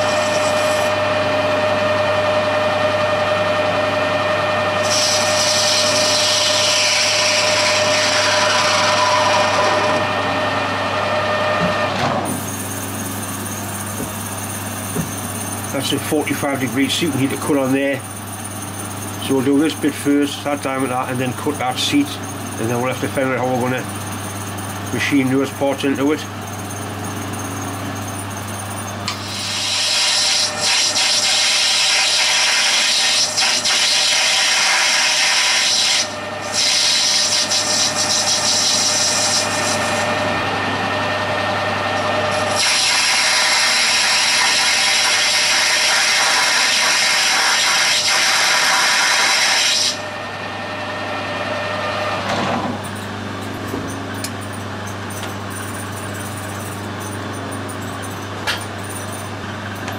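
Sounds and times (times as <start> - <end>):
lathe motor hum: 0.0 - 59.9
lathe cutting hiss: 4.7 - 10.2, 29.1 - 40.2, 42.0 - 50.0.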